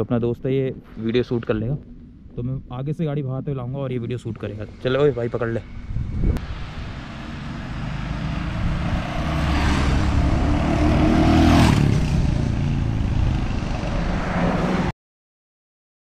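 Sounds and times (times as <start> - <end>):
motorcycle engine passing by: 6.8 - 14.9.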